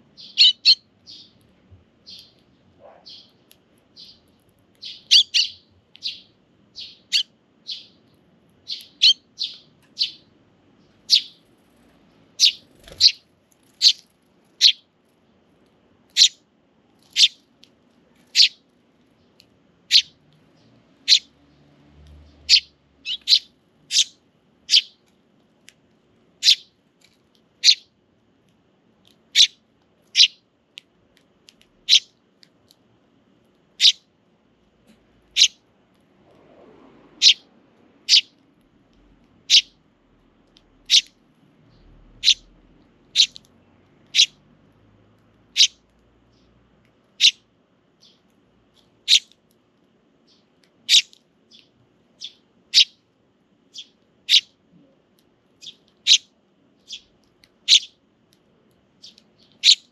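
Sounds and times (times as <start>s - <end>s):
sparrows chirping: 0.0s - 15.0s, 16.1s - 16.4s, 17.0s - 17.5s, 18.1s - 25.1s, 26.4s - 26.8s, 27.6s - 28.0s, 29.3s - 30.5s, 31.8s - 32.2s, 33.8s - 34.1s, 35.3s - 35.6s, 37.2s - 38.4s, 39.4s - 39.8s, 40.8s - 43.4s, 44.0s - 44.4s, 45.5s - 46.6s, 47.2s - 49.4s, 50.2s - 53.0s, 53.7s - 54.6s, 55.6s - 58.0s, 58.9s - 59.9s.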